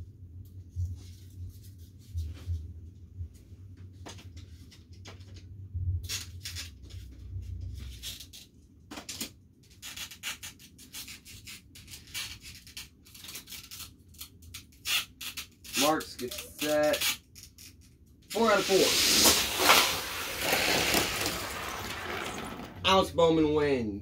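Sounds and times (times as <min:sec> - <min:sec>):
plastic toys scraping and clicking: 0:07.8 - 0:22.9.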